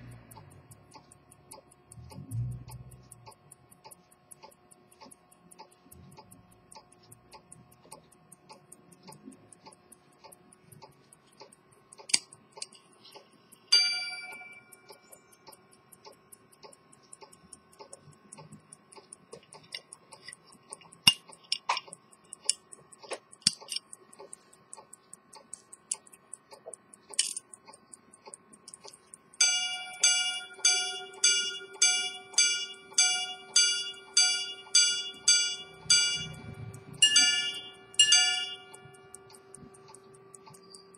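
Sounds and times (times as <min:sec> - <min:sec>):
pocket watch ticking: 0:00.0 - 0:40.9
gong strikes ringing: 0:29.5 - 0:38.7.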